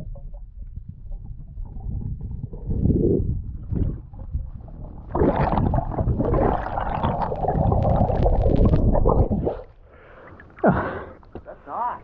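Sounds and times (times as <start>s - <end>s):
underwater rushing rumble: 0.0s - 9.7s
bubble clicks: 5.1s - 9.6s.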